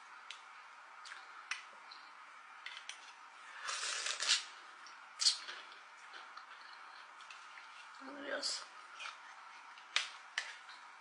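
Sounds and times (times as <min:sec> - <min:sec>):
loud slurp: 0:03.6 - 0:04.5.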